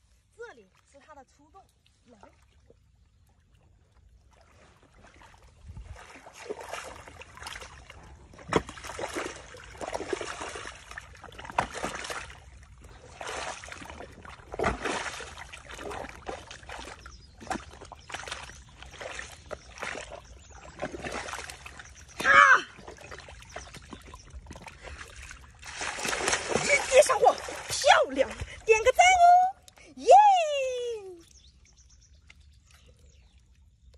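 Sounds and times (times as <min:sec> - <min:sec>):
muddy water sloshing and splashing: 0:00.0 - 0:33.9
hands digging in wet mud: 0:06.0 - 0:28.5.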